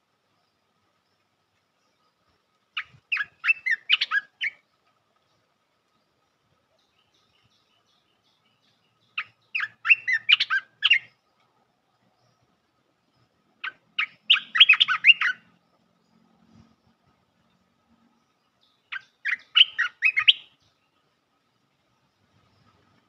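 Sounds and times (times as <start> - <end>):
bird singing quick notes: 13.6 - 15.4, 18.9 - 20.7.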